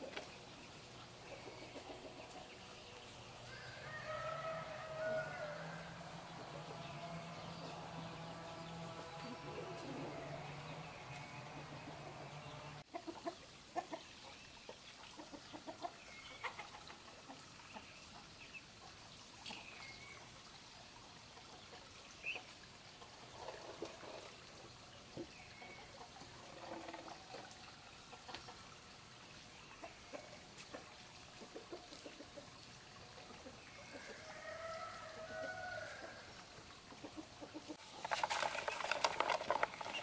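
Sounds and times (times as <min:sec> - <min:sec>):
chickens clucking: 0:00.0 - 0:18.6, 0:29.5 - 0:34.7, 0:35.3 - 0:40.0.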